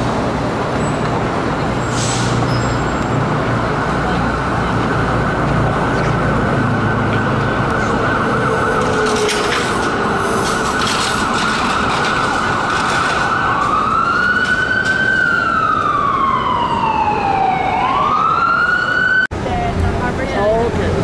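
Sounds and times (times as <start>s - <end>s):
street traffic: 0.0s - 21.0s
emergency vehicle siren wailing: 2.7s - 19.3s.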